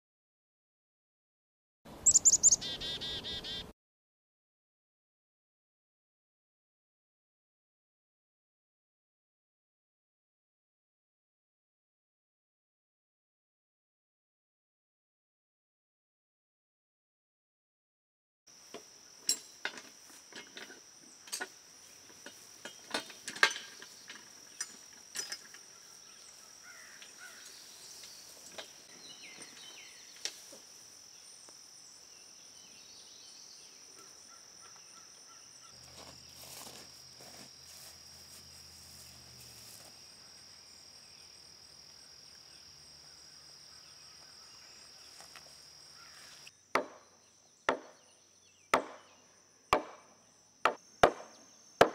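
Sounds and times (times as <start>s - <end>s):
insects chirring: 2.0s - 3.7s, 18.5s - 51.9s
metal clanks and clicks: 22.2s - 25.6s.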